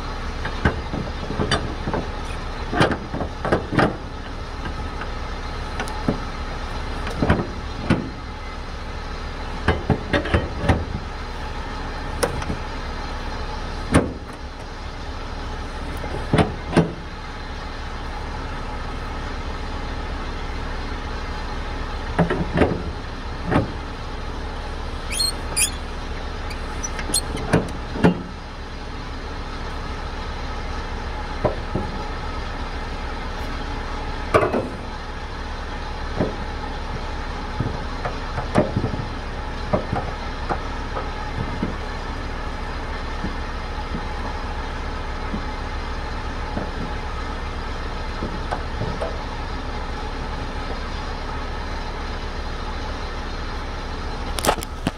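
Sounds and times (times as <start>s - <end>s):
truck engine idling: 0.0s - 54.9s
metal clanks of winch bar: 26.5s - 28.2s.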